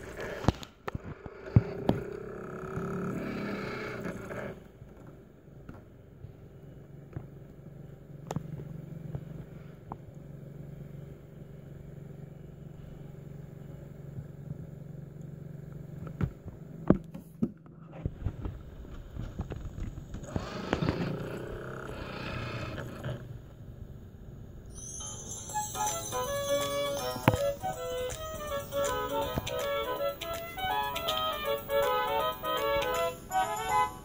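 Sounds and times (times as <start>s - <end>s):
low room hum: 0.0s - 34.0s
wavering bending pitch sound: 24.7s - 34.0s.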